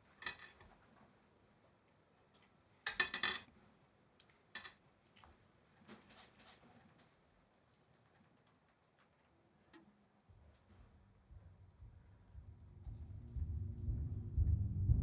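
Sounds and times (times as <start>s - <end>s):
metal rings clinking on ceramic: 0.2s - 0.6s, 2.9s - 3.5s, 4.6s - 4.8s.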